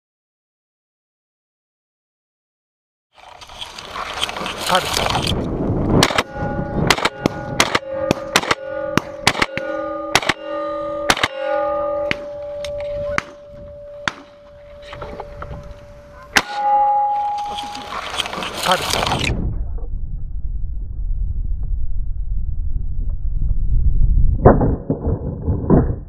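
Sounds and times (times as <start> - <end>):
shotgun shots: 6.0 - 11.5
steady ringing tone: 6.1 - 18.6.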